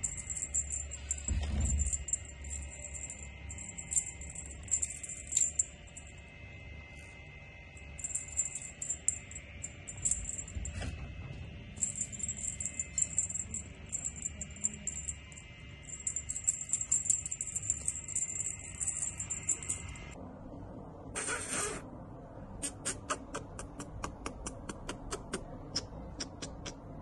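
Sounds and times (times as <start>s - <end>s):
small bell jingling: 0.0s - 6.3s, 7.7s - 10.9s, 11.7s - 20.2s
faint steady high tone: 0.0s - 20.2s.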